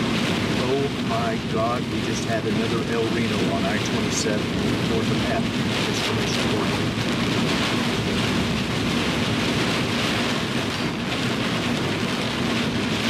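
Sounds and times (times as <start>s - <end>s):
low vehicle drone: 0.0s - 13.0s
wind rushing: 4.2s - 13.0s.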